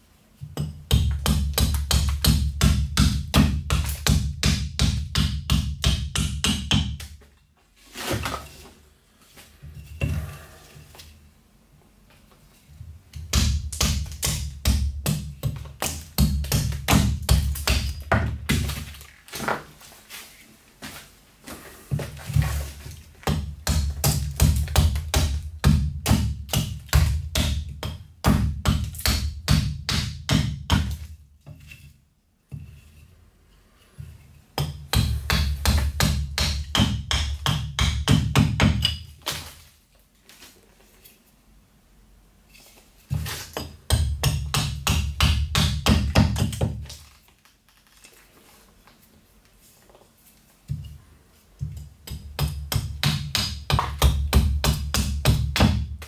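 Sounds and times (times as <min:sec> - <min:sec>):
axe chopping wood: 0:00.6 - 0:07.2, 0:13.2 - 0:19.0, 0:23.2 - 0:31.1, 0:34.6 - 0:39.6, 0:43.2 - 0:47.0, 0:51.7 - 0:56.0.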